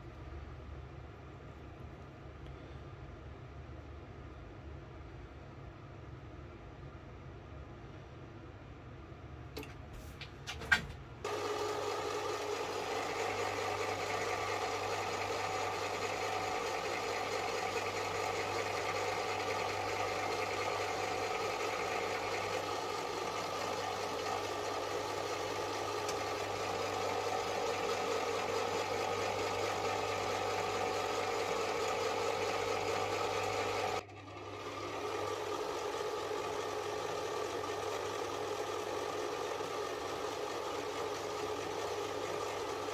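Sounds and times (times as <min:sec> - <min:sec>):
metal lathe humming and whining: 0:11.3 - 0:34.0
clicks: 0:25.8 - 0:26.4.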